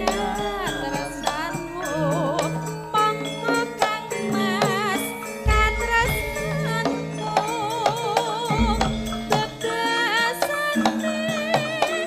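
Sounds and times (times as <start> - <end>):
ringing bronze metallophones: 0.0 - 12.0
woman singing with vibrato: 0.0 - 12.0
drum strokes: 3.8 - 10.9
deep drum strokes: 5.5 - 6.8.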